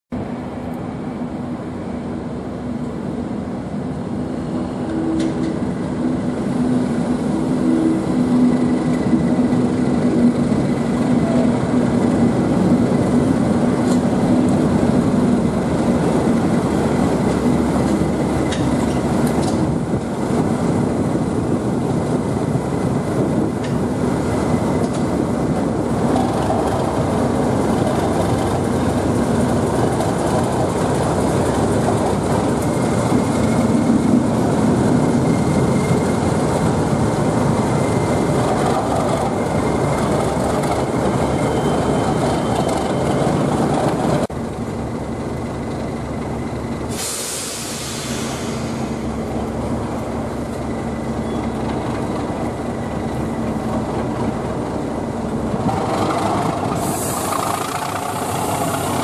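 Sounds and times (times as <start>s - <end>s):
diesel locomotive engine drone: 0.1s - 59.0s
wheels clicking over rails: 8.7s - 20.4s, 23.3s - 44.3s, 49.3s - 59.0s.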